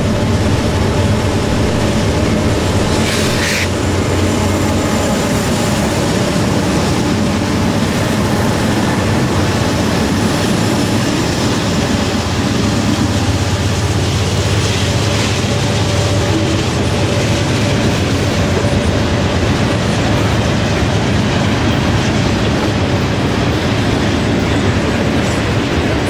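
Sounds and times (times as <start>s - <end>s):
wheels rolling on rails: 0.0s - 4.1s
locomotive engines droning: 0.0s - 26.0s
brief high hiss: 2.8s - 3.7s.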